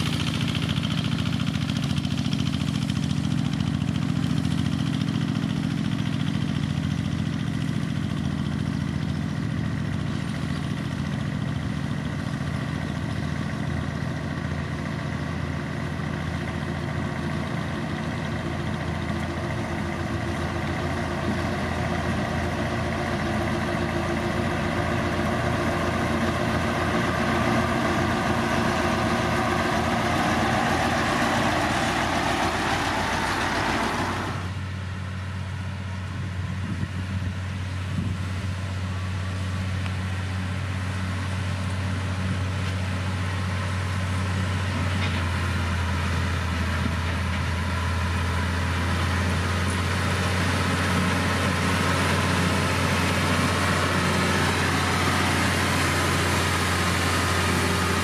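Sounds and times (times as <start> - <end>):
heavy machinery diesel engine: 0.0 - 58.0
quieter engine hum: 0.0 - 58.0.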